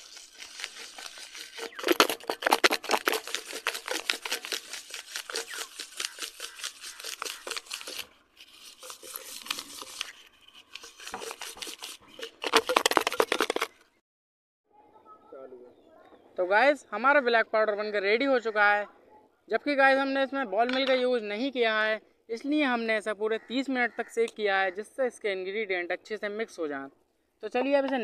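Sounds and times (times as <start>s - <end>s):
powder shaken in metal tin: 0.0s - 13.8s.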